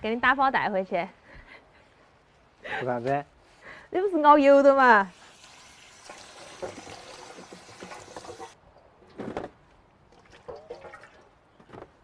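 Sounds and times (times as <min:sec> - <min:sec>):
tap water splashing into basin: 0:05.4 - 0:08.6.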